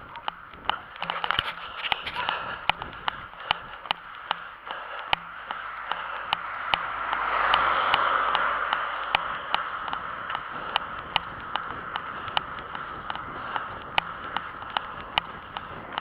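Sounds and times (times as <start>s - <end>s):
running footsteps on pavement: 0.0s - 16.0s
rushing noise: 4.8s - 12.0s.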